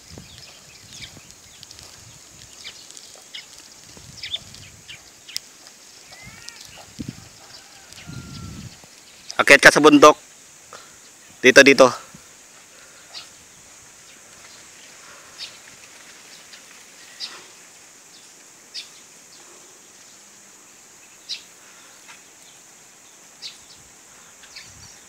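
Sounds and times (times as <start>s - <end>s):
high-pitched insect hiss: 0.0s - 25.0s.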